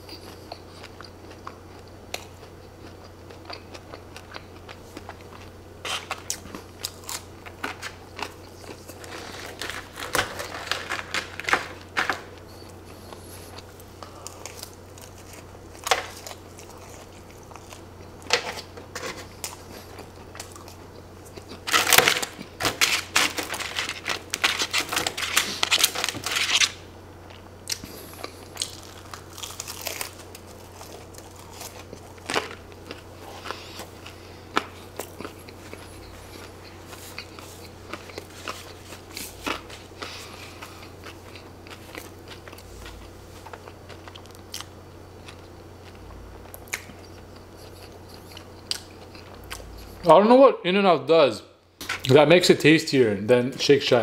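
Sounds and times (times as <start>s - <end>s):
chewing: 0.0s - 26.2s, 27.2s - 50.0s
paper tray crinkling: 8.7s - 12.3s, 21.6s - 26.8s.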